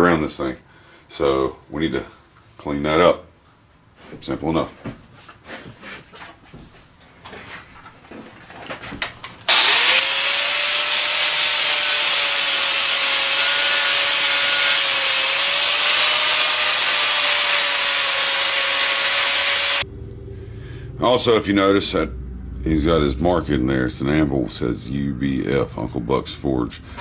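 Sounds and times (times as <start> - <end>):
angle grinder grinding steel: 9.5 - 19.8.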